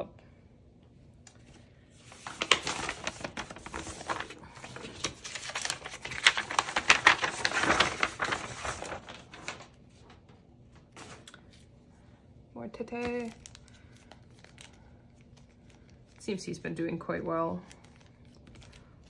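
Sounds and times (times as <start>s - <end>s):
plastic packaging crinkling: 1.5s - 10.1s, 12.9s - 16.3s, 17.6s - 19.0s.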